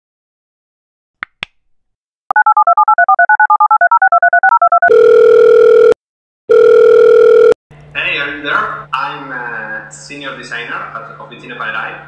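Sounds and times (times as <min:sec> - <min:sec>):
phone ringing tone: 0:02.3 - 0:07.6.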